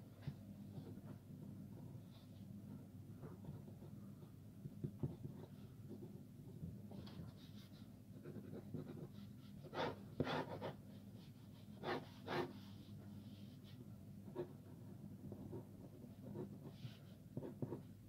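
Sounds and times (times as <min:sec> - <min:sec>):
pen scratching on paper: 0:07.4 - 0:12.8, 0:15.3 - 0:17.9.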